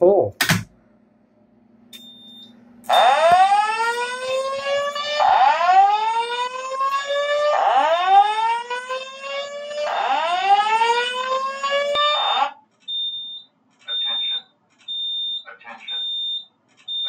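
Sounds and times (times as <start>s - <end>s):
fire alarm whoop tone: 2.0s - 15.4s.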